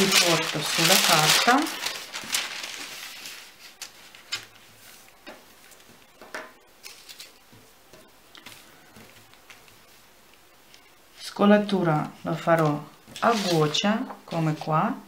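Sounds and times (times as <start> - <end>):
tracing paper rustling: 0.0 - 5.8, 12.5 - 14.5.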